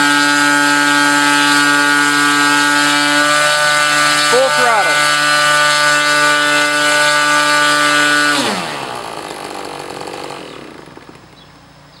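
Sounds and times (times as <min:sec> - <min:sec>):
model engine with propeller: 0:00.0 - 0:12.0.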